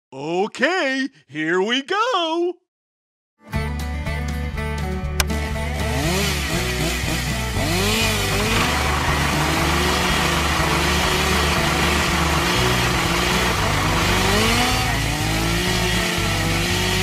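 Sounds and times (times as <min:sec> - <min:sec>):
tractor engine running: 0:05.2 - 0:17.0.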